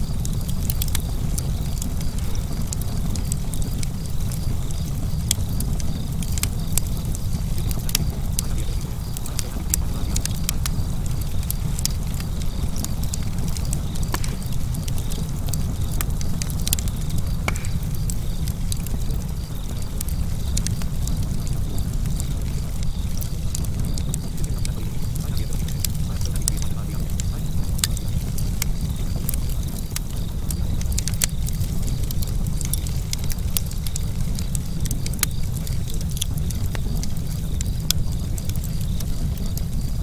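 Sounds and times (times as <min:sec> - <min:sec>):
fire crackling and popping: 0:00.0 - 0:40.0.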